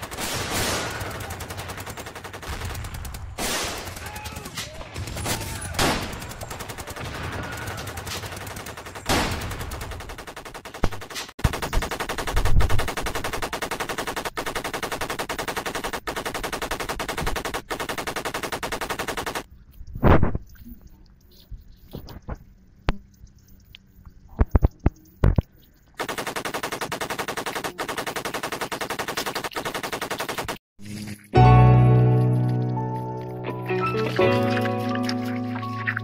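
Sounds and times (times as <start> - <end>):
rapid machine-gun fire: 0.0 - 19.5, 26.0 - 30.6
single gunshots: 2.5 - 8.2.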